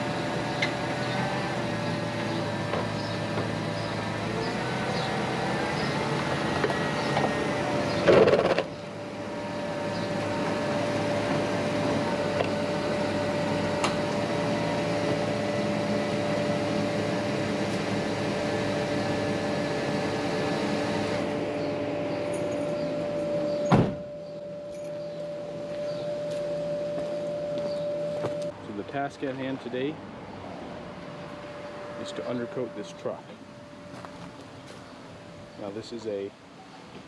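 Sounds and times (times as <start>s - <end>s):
truck door shutting: 23.4s - 24.2s.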